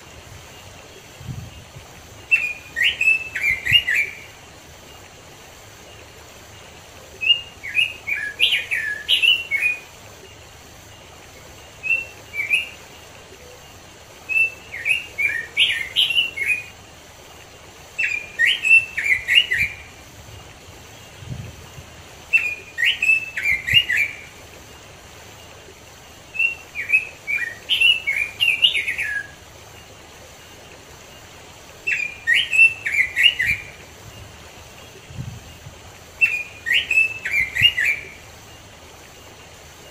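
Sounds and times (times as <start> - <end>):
bird singing warbled phrases: 2.2 - 4.4, 7.1 - 10.0, 13.6 - 16.8, 17.8 - 20.1, 22.2 - 24.3, 26.3 - 29.4, 31.8 - 34.2, 34.8 - 38.2.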